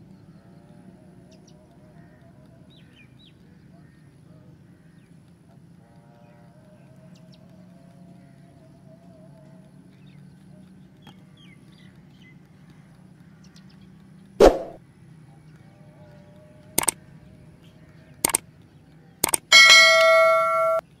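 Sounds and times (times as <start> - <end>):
mouse clicks: 19.2 - 19.5
bright bell chime: 19.5 - 20.9.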